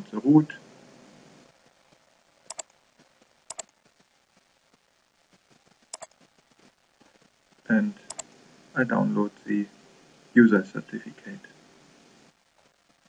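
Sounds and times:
faint hiss: 0:00.0 - 0:13.0
computer mouse clicks: 0:02.5 - 0:02.8, 0:03.5 - 0:03.7, 0:05.9 - 0:06.2, 0:08.1 - 0:08.4.

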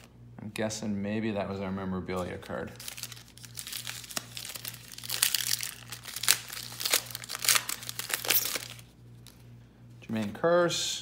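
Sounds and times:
foil wrapper crinkling and tearing: 0:02.6 - 0:09.4.

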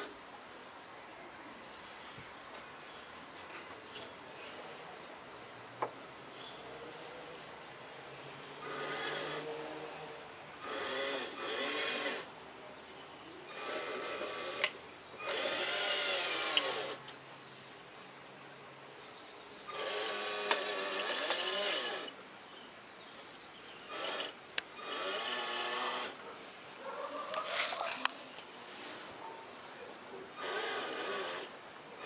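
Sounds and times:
toy truck electric motor whining: 0:08.6 - 0:10.0, 0:10.6 - 0:12.3, 0:13.5 - 0:17.0, 0:19.7 - 0:22.2, 0:23.9 - 0:26.2, 0:30.4 - 0:31.6.

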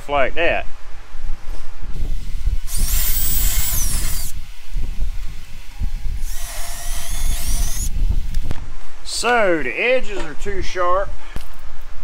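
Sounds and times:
cordless drill whining: 0:02.0 - 0:08.5.

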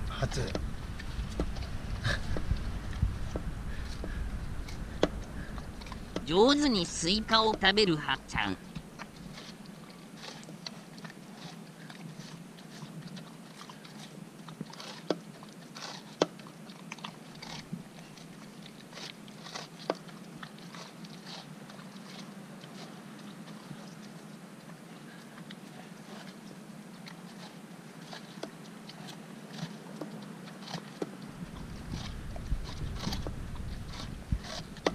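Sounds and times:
puppy chewing watermelon: 0:00.0 - 0:34.9
faint low hum: 0:16.4 - 0:34.9.

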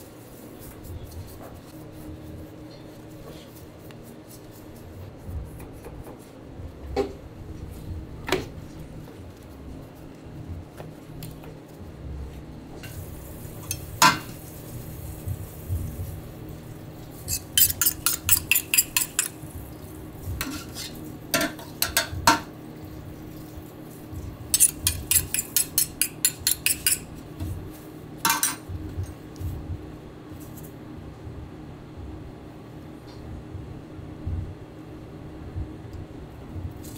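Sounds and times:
metal spoons clinking: 0:17.3 - 0:19.4, 0:24.6 - 0:27.1, 0:28.3 - 0:28.6.

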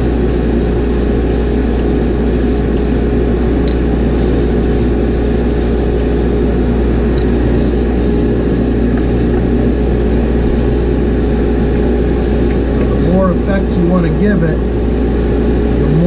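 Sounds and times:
airbrush hissing in bursts: 0:00.0 - 0:03.1, 0:04.2 - 0:06.4, 0:07.5 - 0:09.4, 0:10.6 - 0:11.1, 0:12.2 - 0:12.7
exhaust fan hum: 0:00.0 - 0:16.0.

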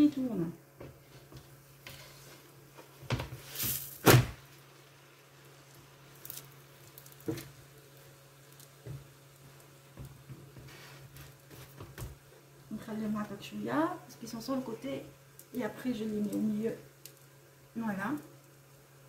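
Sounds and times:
pastry sheets rustling: 0:00.9 - 0:04.7, 0:05.5 - 0:13.4.

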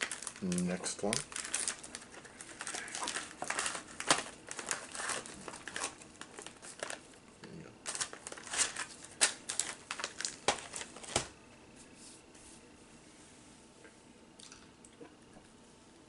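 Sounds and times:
plastic packaging crinkling: 0:00.0 - 0:11.4.

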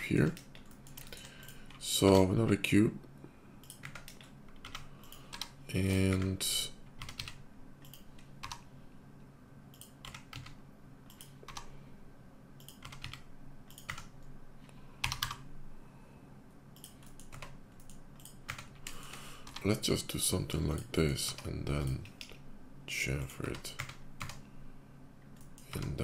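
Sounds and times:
faint low hum: 0:00.0 - 0:26.0
keyboard keys clicking: 0:03.6 - 0:06.3, 0:07.0 - 0:08.6, 0:09.7 - 0:11.7, 0:12.6 - 0:14.1, 0:15.0 - 0:15.4, 0:16.8 - 0:19.7.

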